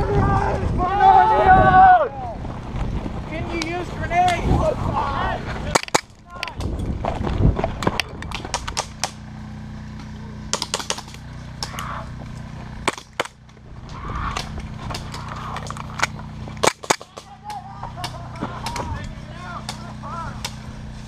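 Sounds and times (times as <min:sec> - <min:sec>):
airsoft pistols firing: 0:05.7 - 0:06.7, 0:08.3 - 0:09.2, 0:10.5 - 0:11.8, 0:12.9 - 0:13.4, 0:14.4 - 0:17.6.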